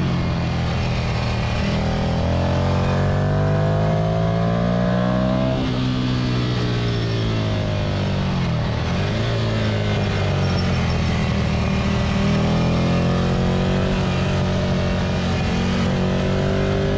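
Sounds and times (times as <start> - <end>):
motorcycle engine: 0.0 - 16.9.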